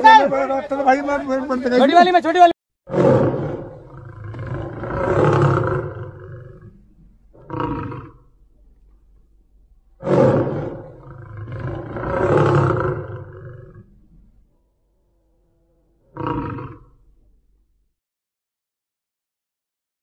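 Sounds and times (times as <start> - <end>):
big cat roaring: 2.9 - 17.5.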